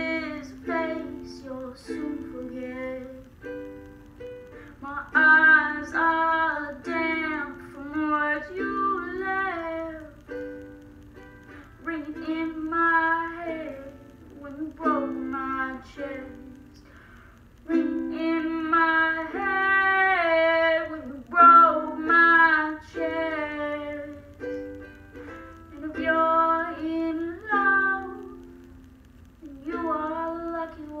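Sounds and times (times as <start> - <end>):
woman singing: 0.0 - 3.6, 4.7 - 10.4, 11.7 - 17.0, 17.6 - 24.7, 25.6 - 28.6, 29.4 - 31.0
ukulele strumming: 0.0 - 31.0.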